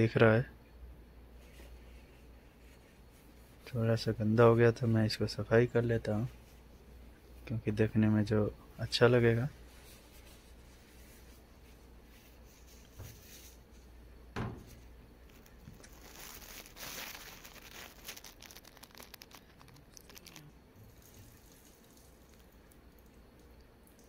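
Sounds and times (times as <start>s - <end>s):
tissue rustling on plastic: 9.5s - 13.9s, 14.7s - 22.1s
short knock: 14.4s - 14.7s.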